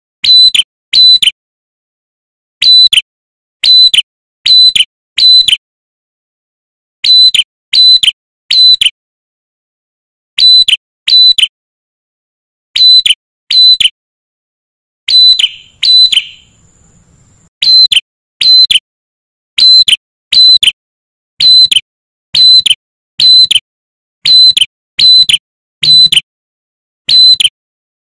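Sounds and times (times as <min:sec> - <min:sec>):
bird whistled calls: 0:00.2 - 0:01.3, 0:02.6 - 0:03.0, 0:03.6 - 0:05.6, 0:07.0 - 0:08.9, 0:10.4 - 0:11.5, 0:12.8 - 0:13.9, 0:15.1 - 0:18.8, 0:19.6 - 0:20.7, 0:21.4 - 0:21.8, 0:22.4 - 0:23.6, 0:24.2 - 0:26.2, 0:27.1 - 0:27.5.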